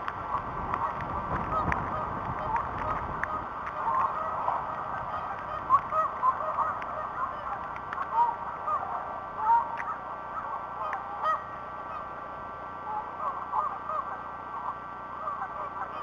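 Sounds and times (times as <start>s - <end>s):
faint steady whine: 0.0s - 16.0s
flock of birds calling: 0.0s - 16.0s.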